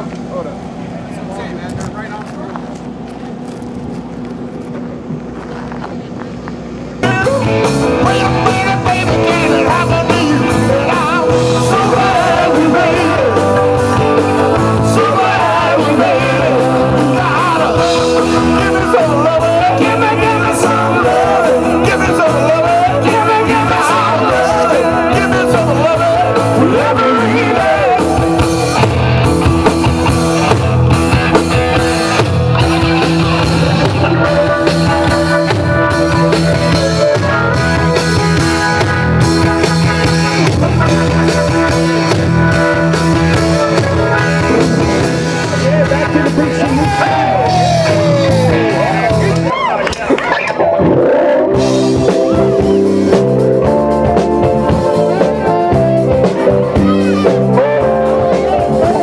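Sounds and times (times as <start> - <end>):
bass guitar: 0.0 - 59.0
person singing: 7.0 - 28.4, 44.4 - 48.9
drum kit: 7.0 - 49.4, 51.3 - 59.0
saxophone: 44.0 - 45.8.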